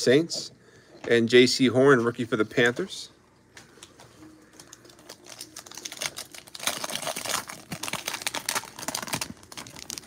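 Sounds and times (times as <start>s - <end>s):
foil wrapper crinkling and tearing: 4.5s - 10.0s.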